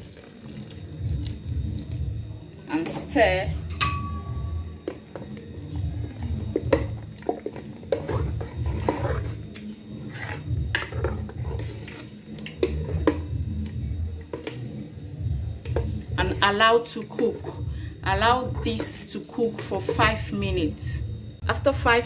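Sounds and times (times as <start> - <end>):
spoon clinking against pot: 3.7 - 5.4
spoon churning thick soup: 4.8 - 14.8.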